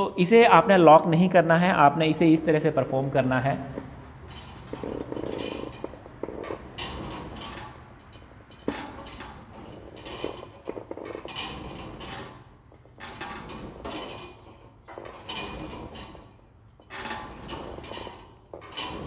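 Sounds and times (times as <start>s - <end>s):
weight plates clinking and rattling: 4.2s - 19.0s.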